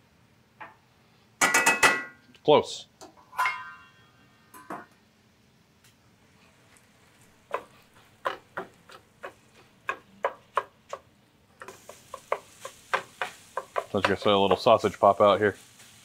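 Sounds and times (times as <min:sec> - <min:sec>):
utensil scraping skillet: 0:11.6 - 0:16.0.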